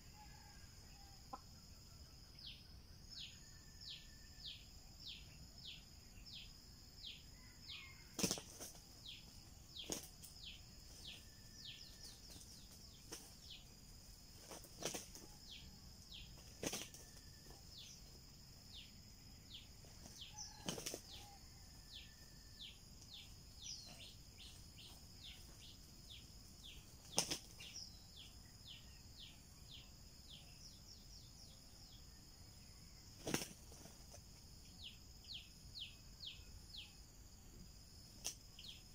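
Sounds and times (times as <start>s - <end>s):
roosters fighting: 7.2s - 28.4s, 33.0s - 34.7s
wing flapping: 8.1s - 8.9s, 9.8s - 11.1s, 14.3s - 15.3s, 16.3s - 17.6s, 19.9s - 21.2s, 26.9s - 27.7s, 33.1s - 34.2s.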